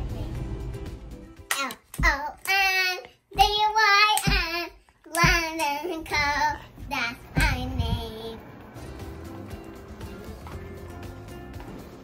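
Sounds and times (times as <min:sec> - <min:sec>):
low beat: 0:06.7 - 0:12.0.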